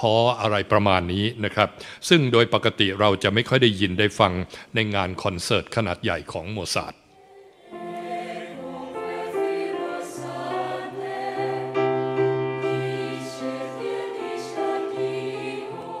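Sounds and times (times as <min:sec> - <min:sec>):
choir singing held chords: 0:07.1 - 0:16.0.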